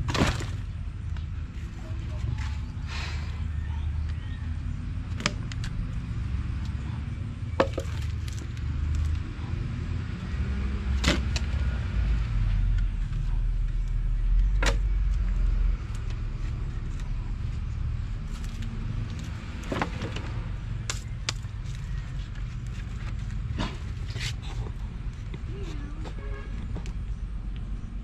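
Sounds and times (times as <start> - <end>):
firewood logs knocking: 7.6 - 8.4.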